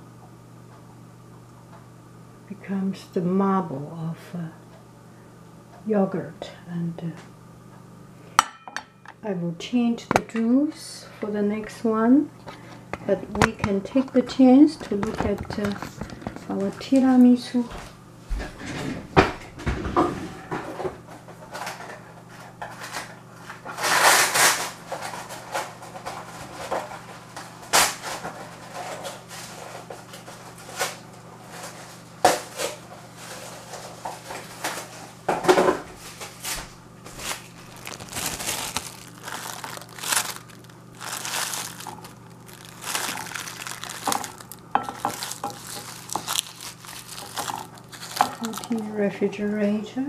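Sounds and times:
cling wrap crinkling: 0:36.0 - 0:49.0.

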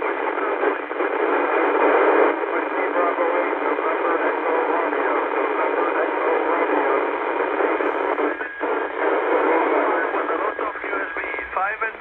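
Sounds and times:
radio hiss: 0:00.0 - 0:12.0.

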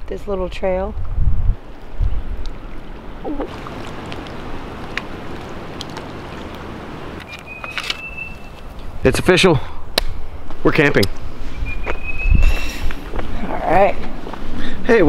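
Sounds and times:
wind: 0:00.0 - 0:15.0
wind rumbling on microphone: 0:00.0 - 0:15.0
small waves splashing: 0:01.6 - 0:09.0.

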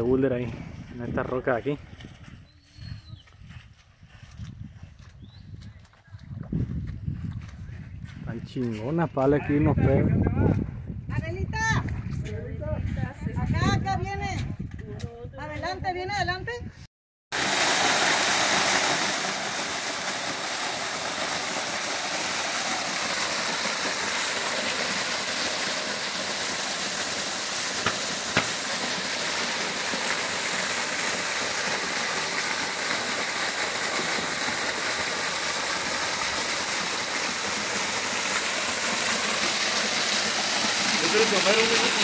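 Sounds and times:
waterfall rushing: 0:17.4 - 0:42.0.

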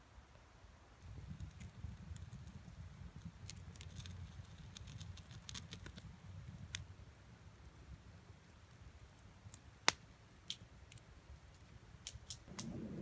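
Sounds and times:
campfire crackling: 0:01.0 - 0:13.0
low rumble: 0:12.5 - 0:13.0.

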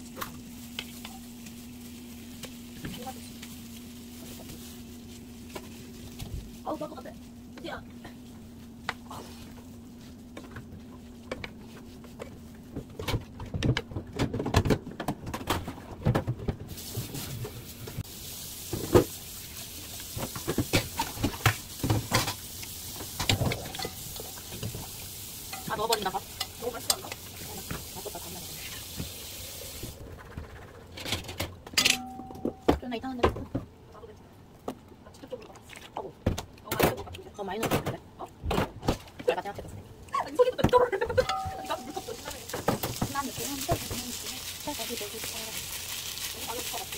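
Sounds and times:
pan sizzling: 0:00.0 - 0:12.6, 0:16.7 - 0:30.0, 0:41.1 - 0:46.9.

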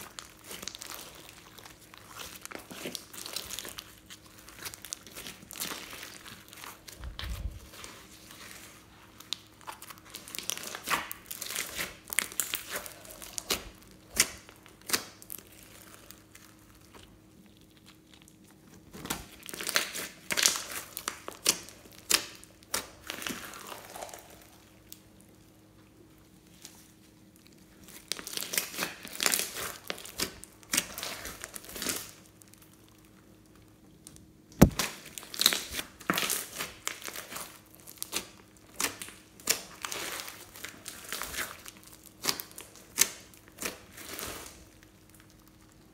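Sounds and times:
slime crackling and popping: 0:00.0 - 0:08.5, 0:09.2 - 0:25.2, 0:27.3 - 0:45.9
sharp loud snap: 0:34.6 - 0:34.9.

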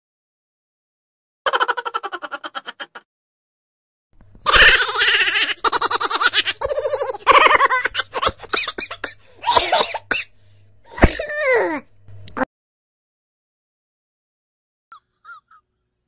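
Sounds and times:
hearty human laughter: 0:01.5 - 0:03.1, 0:04.4 - 0:09.9.

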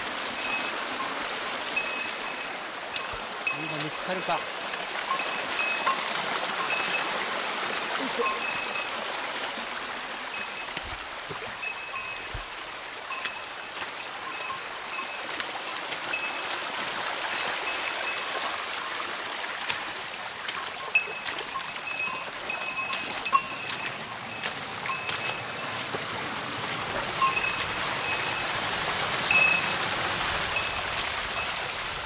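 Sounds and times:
stream running: 0:00.0 - 0:32.0.

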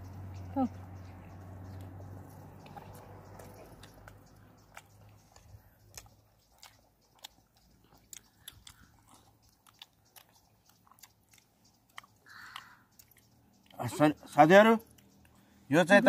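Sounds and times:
person chewing food: 0:01.6 - 0:14.0, 0:14.8 - 0:15.6.

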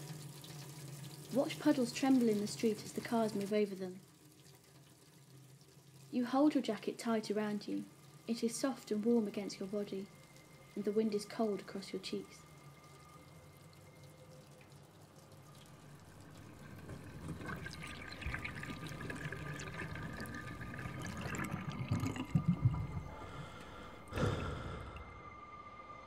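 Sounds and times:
tap water running into sink: 0:00.0 - 0:06.1, 0:14.6 - 0:23.8.

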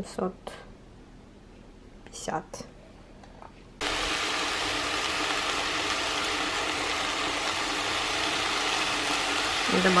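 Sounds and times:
apple slices sizzling in a pan: 0:03.8 - 0:10.0.

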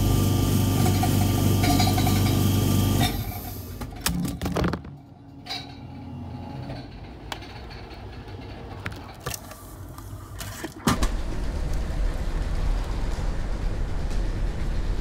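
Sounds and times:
vending machine mechanism humming: 0:00.0 - 0:15.0
loud low rumble: 0:11.0 - 0:15.0.

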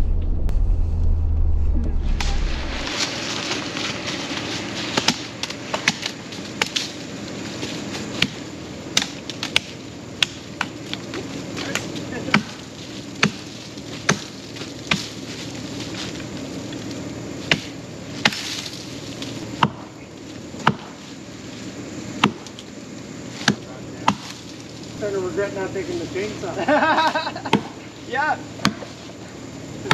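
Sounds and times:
steady low hum: 0:00.0 - 0:29.9
axe chopping wood: 0:04.8 - 0:06.9, 0:08.1 - 0:15.2, 0:17.4 - 0:18.8, 0:19.6 - 0:19.9, 0:20.6 - 0:21.0, 0:22.2 - 0:22.6, 0:23.4 - 0:24.4, 0:27.4 - 0:27.8, 0:28.6 - 0:29.0.

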